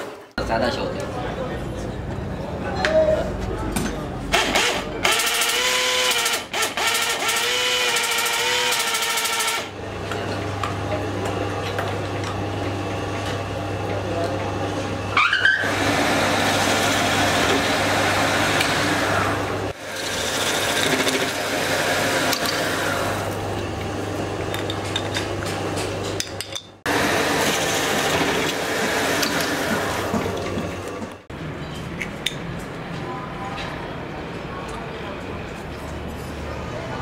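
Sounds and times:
lathe motor hum: 6.8s - 24.7s, 26.9s - 31.2s
lathe cutting metal: 15.6s - 23.7s, 26.9s - 30.9s.

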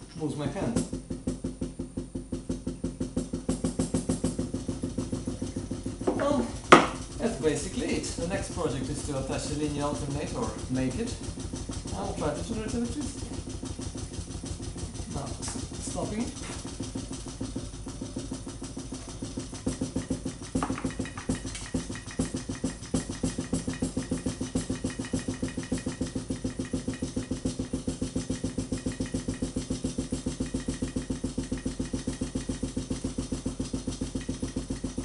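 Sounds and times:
stirling engine knocking: 0.0s - 35.0s
handling knocks: 5.4s - 7.1s, 20.3s - 24.0s.

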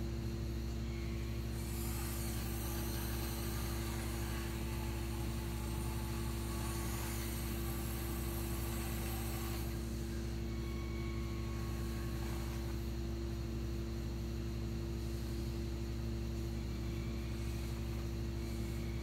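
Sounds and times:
steady low hum: 0.0s - 19.0s
toy gear motors whirring: 1.5s - 12.8s.

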